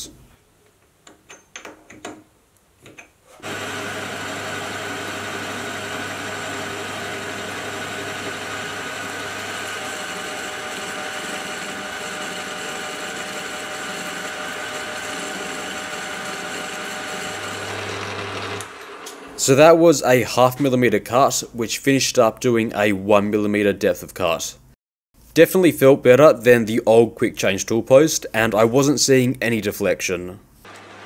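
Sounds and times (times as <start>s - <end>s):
metal lathe cutting steel: 3.4s - 19.4s, 30.7s - 31.0s.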